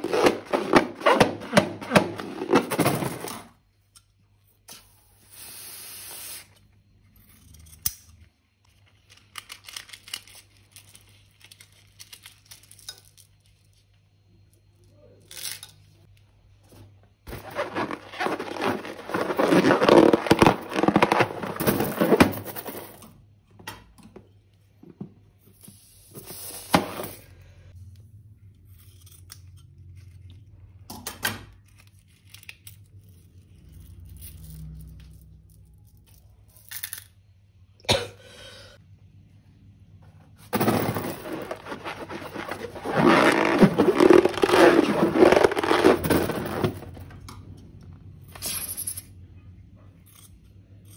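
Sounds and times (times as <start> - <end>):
balloon rubber scraping and crackling: 0.0 - 3.4, 17.3 - 22.4, 40.6 - 47.1.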